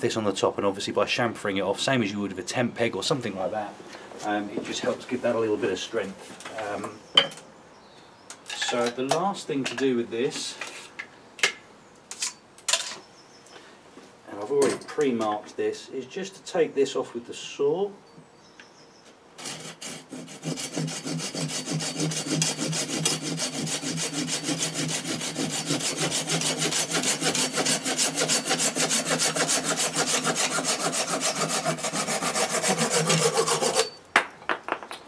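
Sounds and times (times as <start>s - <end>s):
hand saw cutting wood: 19.4s - 34.0s.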